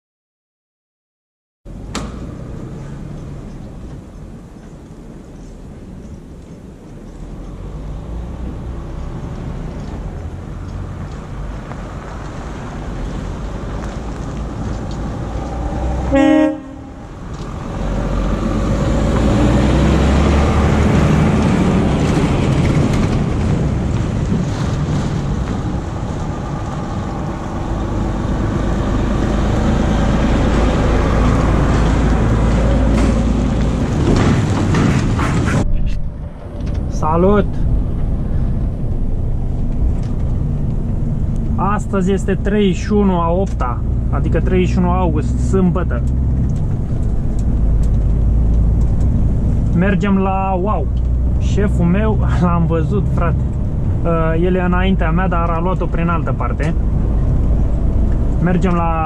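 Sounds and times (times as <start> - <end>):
vehicle engine drone: 1.7 - 59.0
horn blast: 16.0 - 17.1.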